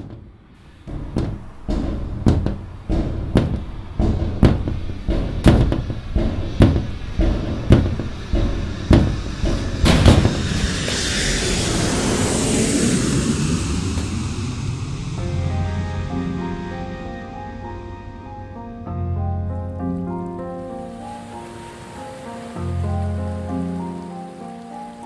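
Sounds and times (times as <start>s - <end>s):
heavy percussive hits: 0.0s - 18.8s
low rumbling drone: 0.0s - 21.2s
rising swell: 7.0s - 24.2s.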